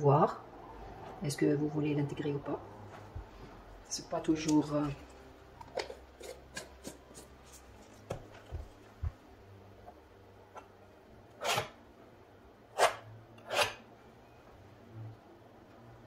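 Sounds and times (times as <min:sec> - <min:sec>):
palette knife scraping canvas: 0:11.4 - 0:11.8, 0:12.8 - 0:13.8.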